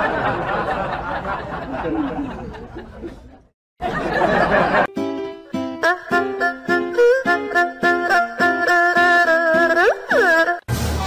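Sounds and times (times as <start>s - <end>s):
crowd laughter and chatter: 0.0s - 4.9s
plucked-string music: 4.9s - 10.8s.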